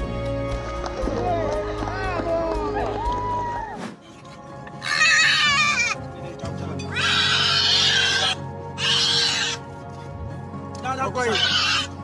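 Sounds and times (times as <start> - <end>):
background music: 0.0 - 12.0
animal crying out high-pitched: 4.8 - 6.0, 6.9 - 9.6, 11.3 - 12.0.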